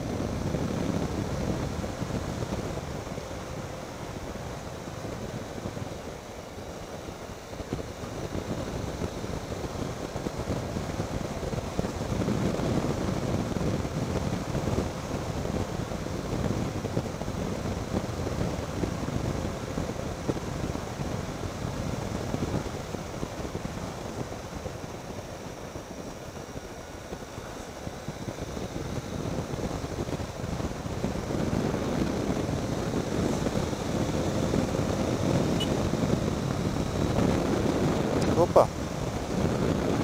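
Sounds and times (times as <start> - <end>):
motorcycle engine and tyre rumble: 0.0 - 40.0
wind rushing on microphone: 0.0 - 40.0.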